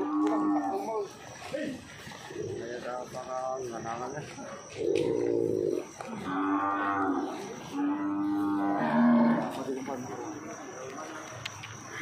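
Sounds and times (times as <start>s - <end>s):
cattle mooing: 0.0s - 0.8s, 6.2s - 9.7s.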